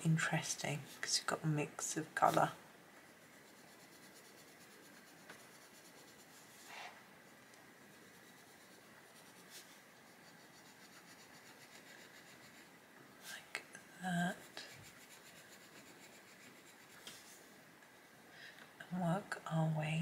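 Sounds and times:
pencil scratching on paper: 0:03.1 - 0:06.8, 0:07.9 - 0:12.8, 0:14.3 - 0:17.2.

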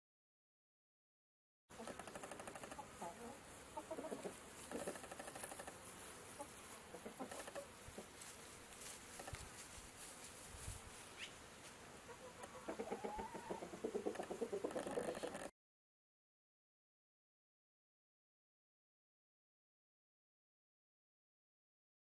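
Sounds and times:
chickens clucking: 0:01.7 - 0:08.3, 0:12.0 - 0:15.5
faint outdoor background noise: 0:01.7 - 0:15.5.

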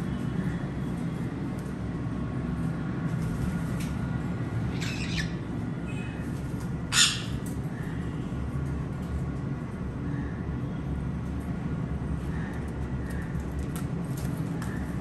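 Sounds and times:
parrot squawks: 0:04.7 - 0:05.4, 0:06.9 - 0:07.4.

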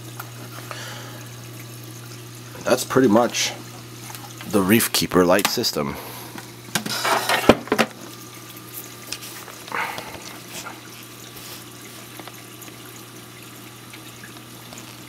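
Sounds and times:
water splashing and trickling: 0:00.0 - 0:04.8, 0:07.9 - 0:15.0
low steady hum: 0:00.0 - 0:15.0.

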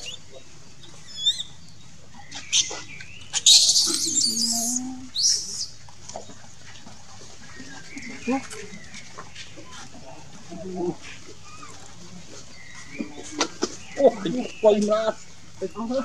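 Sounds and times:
baby monkey squealing: 0:01.1 - 0:01.5, 0:03.3 - 0:05.7.

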